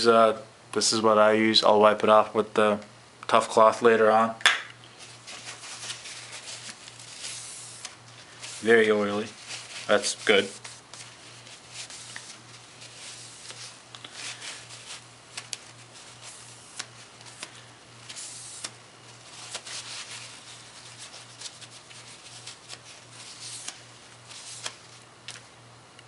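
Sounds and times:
paper towel rubbing on blade: 5.1s - 24.9s.

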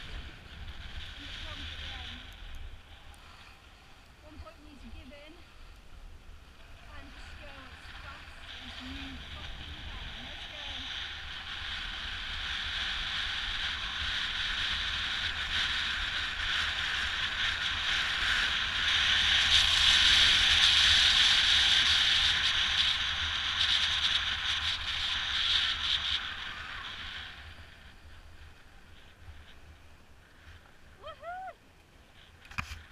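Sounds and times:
wind rushing: 0.0s - 16.7s
skis scraping over packed snow: 0.0s - 32.9s.

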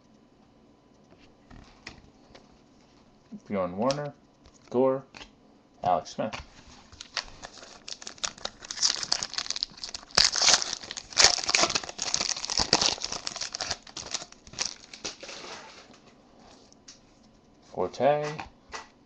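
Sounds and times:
foil wrapper crinkling: 6.8s - 15.9s.

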